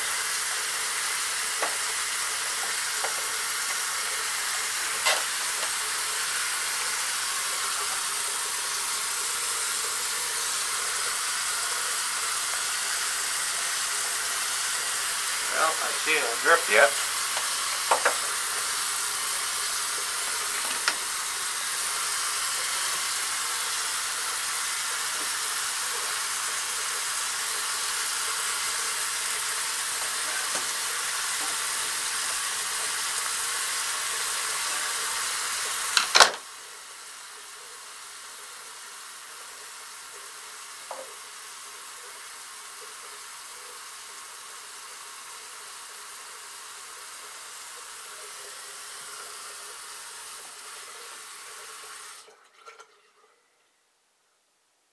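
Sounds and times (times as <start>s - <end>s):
water running down drain: 0.0s - 53.2s
faint hiss: 15.4s - 21.0s.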